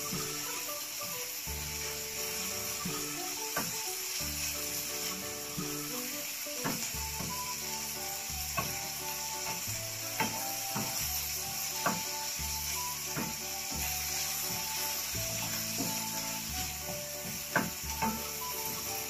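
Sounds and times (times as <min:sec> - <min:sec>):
background music: 0:00.0 - 0:19.0
food sizzling: 0:00.0 - 0:19.0
spatula scraping a frying pan: 0:06.7 - 0:19.0.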